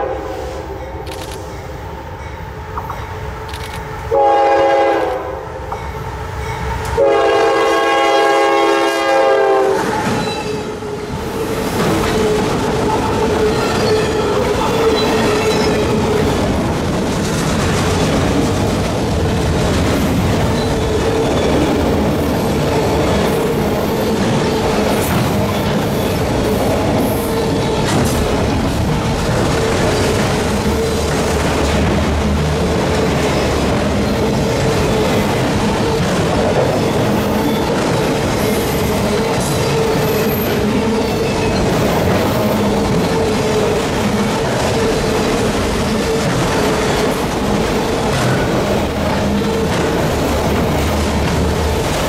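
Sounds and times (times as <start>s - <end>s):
locomotive horn blasts: 0.0s - 0.6s, 4.1s - 5.5s, 7.0s - 9.9s
train wheels on rails: 0.0s - 52.0s.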